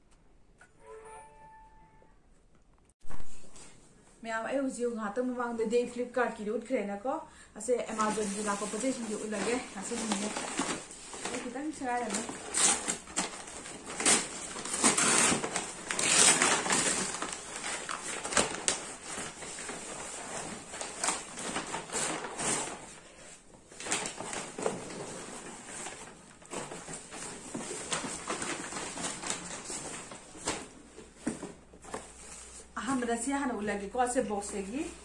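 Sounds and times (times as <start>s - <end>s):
paper bag crinkling and tearing: 7.9s - 31.1s.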